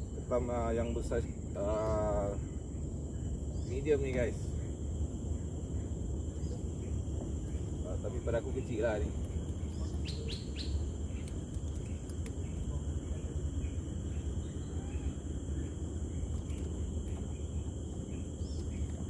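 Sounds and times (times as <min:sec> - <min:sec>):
low outdoor rumble: 0:00.0 - 0:19.0
bird chirping: 0:01.6 - 0:19.0
faint clicks: 0:11.1 - 0:12.6.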